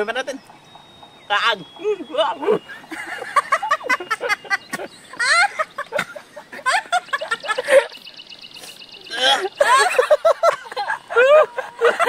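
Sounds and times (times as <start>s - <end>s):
people laughing: 1.8s - 8.1s, 9.0s - 12.0s.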